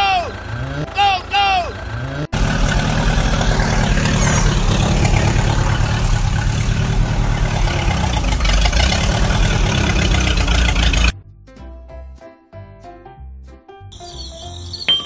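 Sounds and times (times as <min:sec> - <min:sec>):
tractor engine running: 0:00.0 - 0:11.2.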